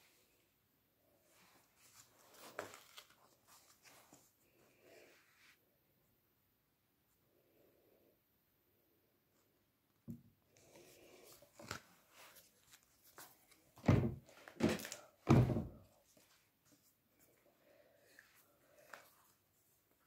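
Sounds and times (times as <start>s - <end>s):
paper rustling: 1.4s - 4.3s, 10.7s - 15.1s
cardboard boards thunking shut: 13.8s - 15.8s.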